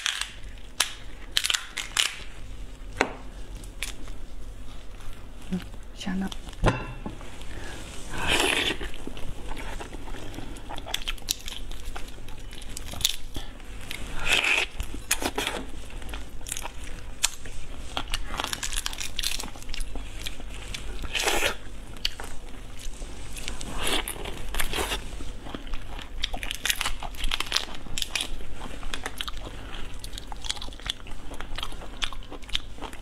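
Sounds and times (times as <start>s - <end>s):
shrimp shells cracking and tearing: 0.0s - 2.2s.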